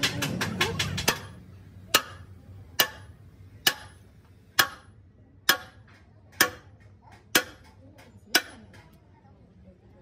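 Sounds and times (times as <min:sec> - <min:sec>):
sledgehammer striking metal: 0:00.0 - 0:06.7.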